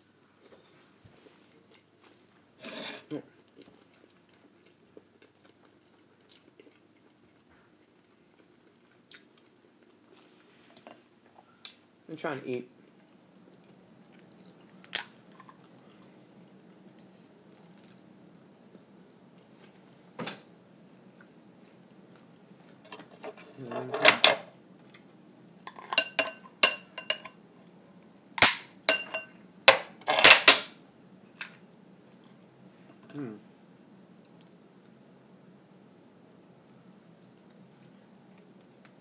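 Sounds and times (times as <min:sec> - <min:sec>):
lobster shell cracking: 0:28.4 - 0:28.7.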